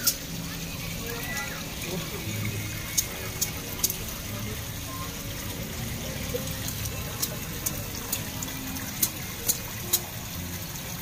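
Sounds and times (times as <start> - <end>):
water splashing and churning: 0.0 - 11.0
sharp pops on water: 2.9 - 4.1, 6.4 - 10.2.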